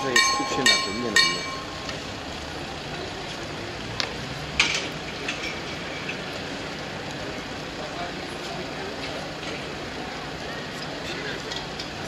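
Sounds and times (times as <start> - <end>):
bell ringing: 0.0 - 1.9.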